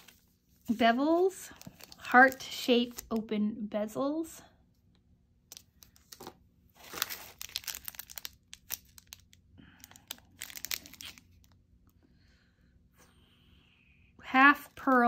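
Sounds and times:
paper and plastic crinkling: 0.0 - 3.2, 5.5 - 11.6.

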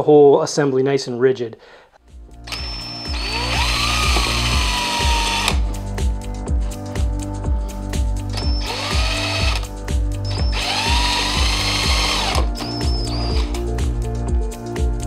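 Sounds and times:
music with steady beat: 2.0 - 15.0
cordless drill boring plastic: 2.5 - 5.6, 8.4 - 9.7, 10.3 - 13.6.

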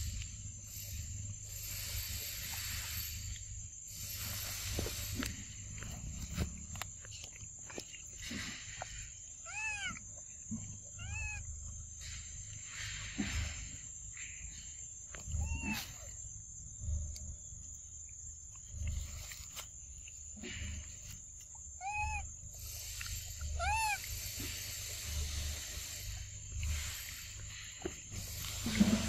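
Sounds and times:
infant monkey coo calls: 10.9 - 11.5, 15.3 - 16.2, 21.8 - 22.4, 23.2 - 24.2.

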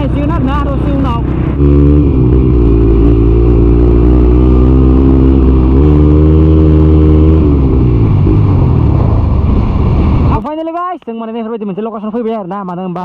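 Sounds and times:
motorcycle engine running: 0.0 - 10.4
wind rush: 0.8 - 10.4.

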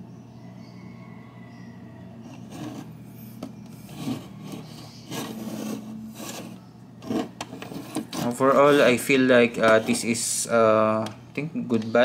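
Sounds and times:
clock scraping on wooden table: 2.2 - 10.4.

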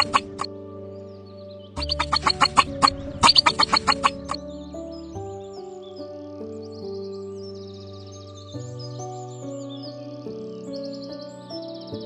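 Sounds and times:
sharp clicks: 1.8 - 4.4
sustained held chords: 1.8 - 6.7.

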